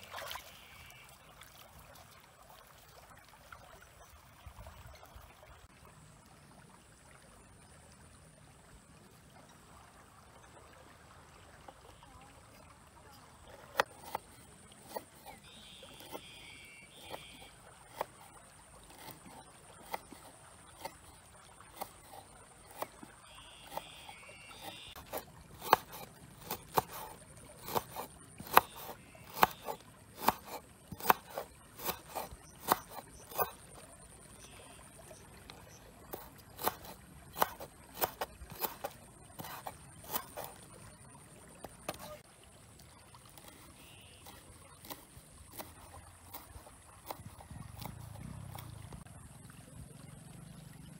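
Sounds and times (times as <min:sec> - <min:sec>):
knife chopping on wooden board: 0:18.9 - 0:20.0, 0:24.6 - 0:33.6, 0:36.1 - 0:40.5.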